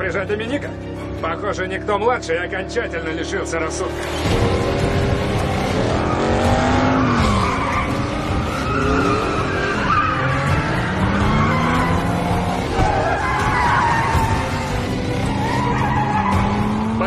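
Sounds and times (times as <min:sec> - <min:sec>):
car engine revving hard: 0:03.8 - 0:17.0
tyres squealing and skidding: 0:04.0 - 0:17.0.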